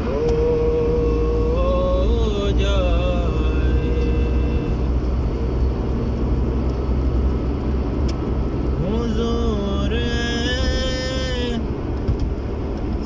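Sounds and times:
person singing drawn-out tones: 0.0 - 4.9
car engine and tyres rumbling: 0.0 - 13.0.

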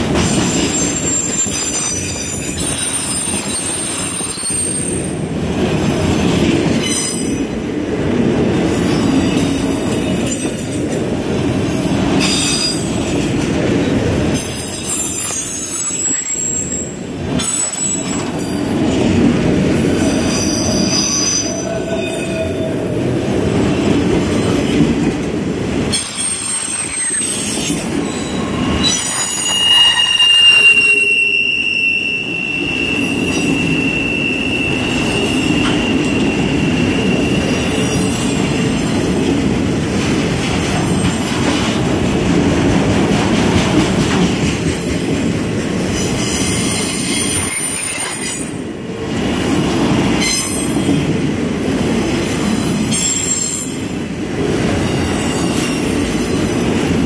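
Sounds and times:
steel wheels rumbling on rail: 0.0 - 57.0
high-pitched wheel squeals: 26.2 - 38.3.

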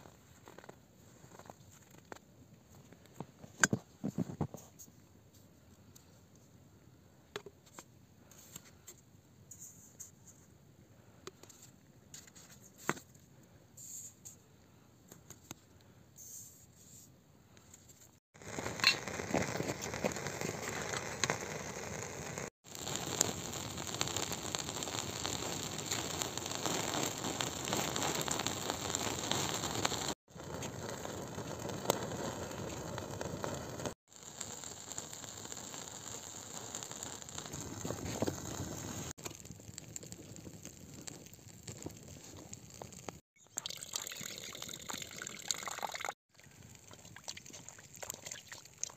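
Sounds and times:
campfire crackling and popping: 18.4 - 48.9.

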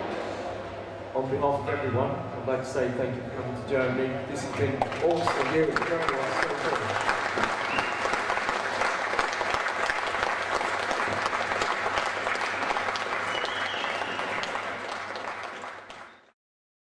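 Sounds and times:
audience applauding: 4.8 - 16.4.

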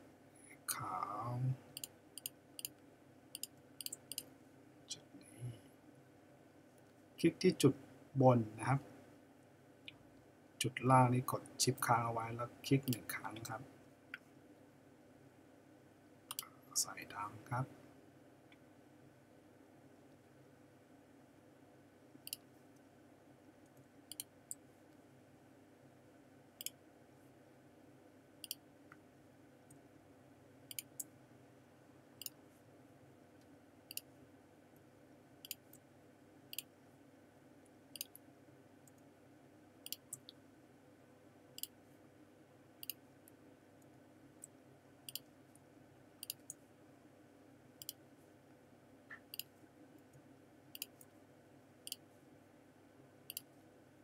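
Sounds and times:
faint steady hum: 0.0 - 54.0
computer mouse clicking: 1.8 - 4.3, 16.3 - 16.5, 22.2 - 22.4, 24.1 - 24.6, 28.4 - 28.6, 30.7 - 31.1, 33.9 - 34.1, 35.4 - 35.8, 37.9 - 38.2, 39.8 - 40.4, 42.8 - 43.0, 44.4 - 45.3, 46.2 - 46.6, 47.8 - 48.0, 50.7 - 51.1, 53.3 - 53.5.

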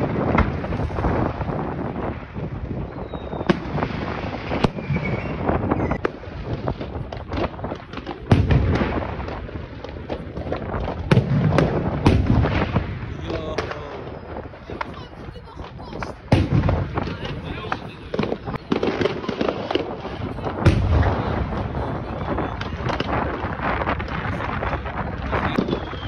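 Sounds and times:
firework shells booming: 0.0 - 26.0
small firework pops: 0.0 - 26.0.

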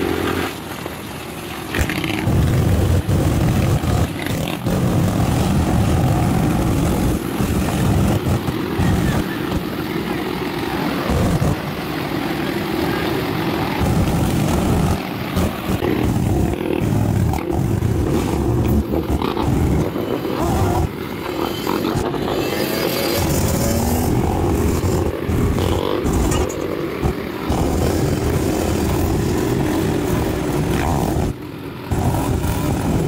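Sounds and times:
quad bike engines rumbling: 0.0 - 33.0
wind buffeting microphone: 1.8 - 10.2.

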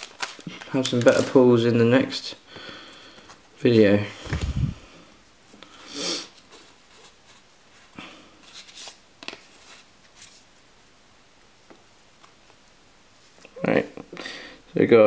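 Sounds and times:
cards rustling and sliding: 0.0 - 1.5, 6.2 - 10.5.

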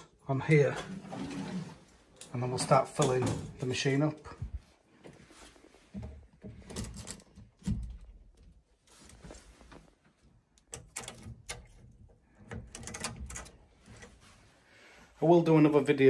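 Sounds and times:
clicks and knocks of hose coupling: 10.5 - 14.1.

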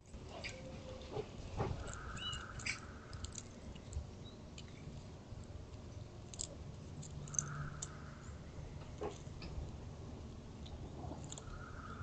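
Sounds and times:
squirrel cracking seeds: 1.6 - 12.0.

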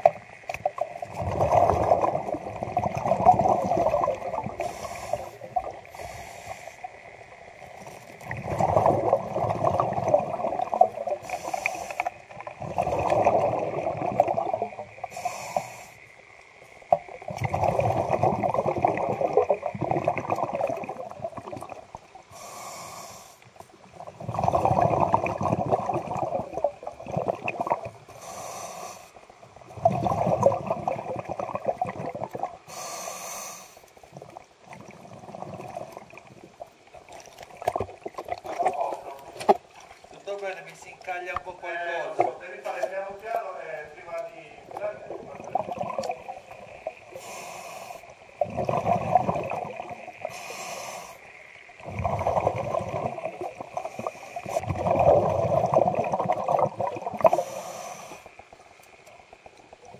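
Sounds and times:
exhaled bubbles rushing: 0.0 - 6.0, 7.7 - 15.1, 16.8 - 22.2, 23.9 - 28.1, 29.6 - 32.7, 34.0 - 43.2, 44.6 - 47.4, 48.1 - 50.6, 51.6 - 57.6
regulator inhalation hiss: 4.5 - 7.1, 11.2 - 12.2, 15.0 - 16.2, 22.3 - 23.6, 28.1 - 29.4, 32.6 - 33.9, 47.1 - 48.3, 50.2 - 51.6, 53.8 - 54.6, 57.2 - 58.5.

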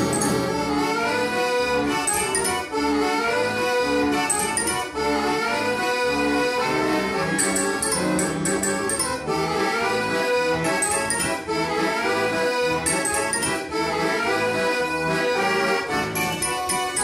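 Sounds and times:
high tinkling accents: 0.0 - 0.5, 2.1 - 2.7, 4.3 - 4.9, 7.4 - 9.2, 10.7 - 11.4, 12.9 - 13.7, 16.2 - 17.0
self-playing accordion tune: 0.0 - 17.0.

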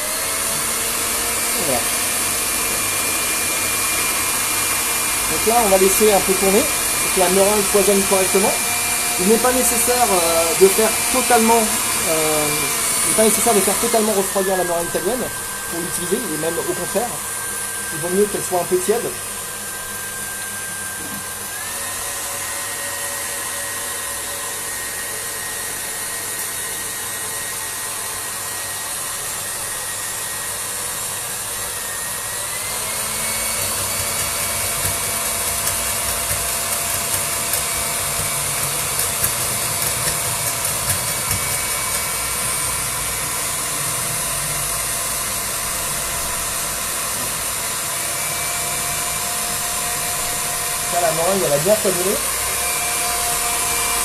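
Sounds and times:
stand mixer motor whining: 0.0 - 54.0
whisk beating meringue: 0.1 - 22.0, 32.6 - 43.4.

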